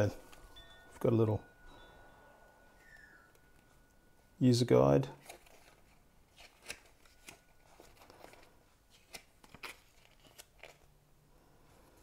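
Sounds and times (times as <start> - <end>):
paper crackling and rustling: 5.2 - 10.9.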